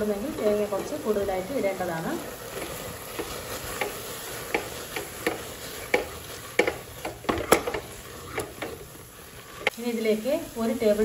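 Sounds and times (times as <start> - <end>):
wooden masher scraping metal pot: 0.0 - 9.8.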